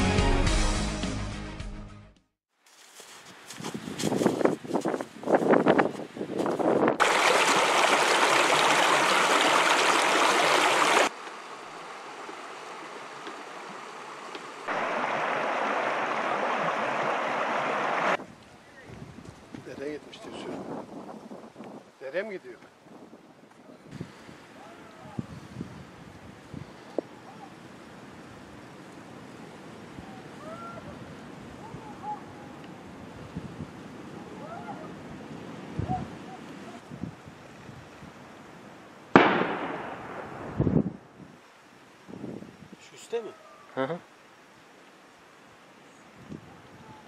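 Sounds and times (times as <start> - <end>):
wind noise: 3.5 - 7.7, 17.8 - 22.0, 22.8 - 27.2, 29.8 - 38.2, 39.2 - 41.4, 42.1 - 42.8, 46.2 - 47.0
stream rushing over rocks: 7.0 - 18.2.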